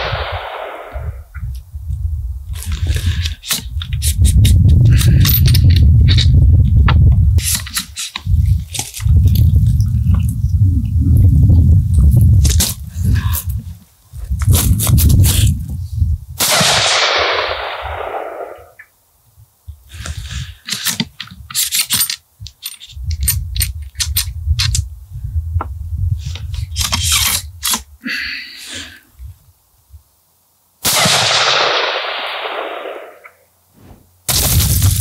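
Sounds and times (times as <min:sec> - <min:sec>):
rifle shot with echo: 0:00.0 - 0:01.3, 0:16.4 - 0:18.8, 0:30.8 - 0:33.4
metallic handling clicks and rattles: 0:02.6 - 0:06.3, 0:20.6 - 0:24.8.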